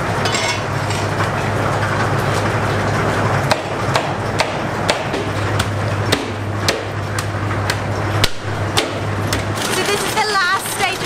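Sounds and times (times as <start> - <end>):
machine hum: 0.0 - 11.0
sharp knocks: 3.5 - 9.5.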